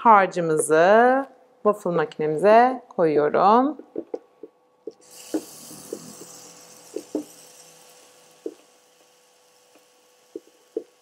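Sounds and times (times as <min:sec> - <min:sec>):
batter sizzling on hot plate: 0:05.0 - 0:11.0.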